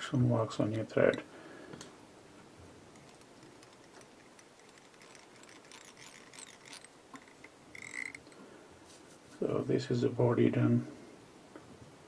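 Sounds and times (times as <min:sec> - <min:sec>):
small clicks and light rustling: 0:00.6 - 0:09.1.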